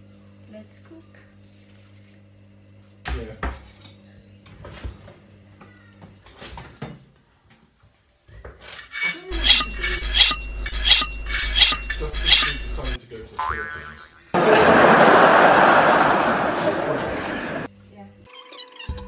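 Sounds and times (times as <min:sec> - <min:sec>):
kitchen utensils clattering: 0:08.9 - 0:13.0
knife rasping through sharpener: 0:08.9 - 0:13.0.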